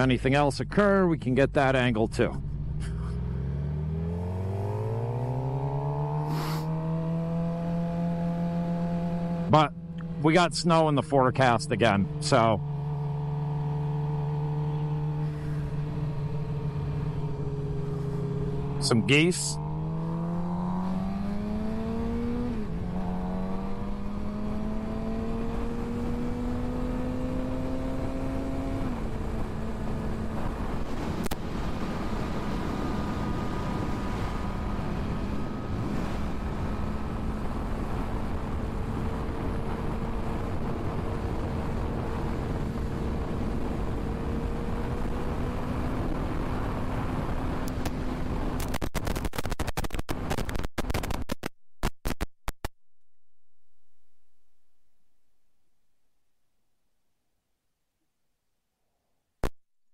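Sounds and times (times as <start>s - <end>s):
motorcycle engine accelerating: 0.0s - 51.4s
wind rush: 30.2s - 44.0s.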